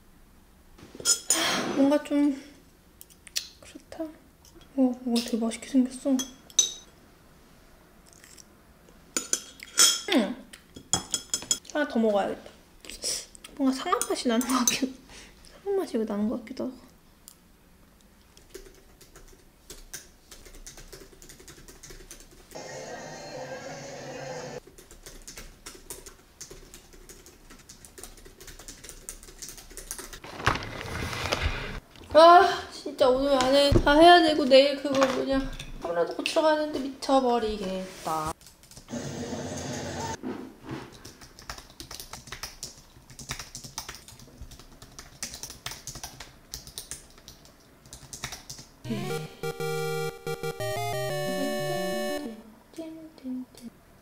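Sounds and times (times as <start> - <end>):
computer keyboard typing: 18.4 - 22.5, 24.6 - 30.2, 38.4 - 38.9, 41.0 - 52.4
music: 48.9 - 52.4.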